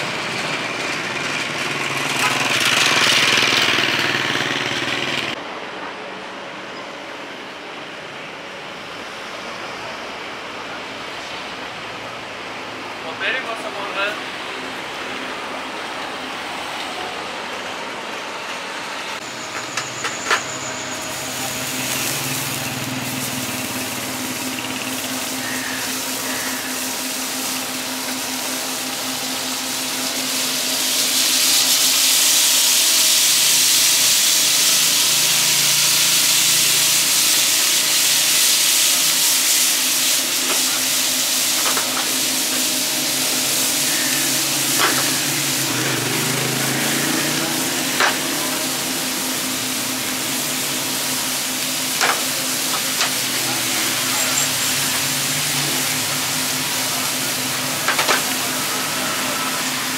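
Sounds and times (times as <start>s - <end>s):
food sizzling in oil: 19.2s - 59.9s.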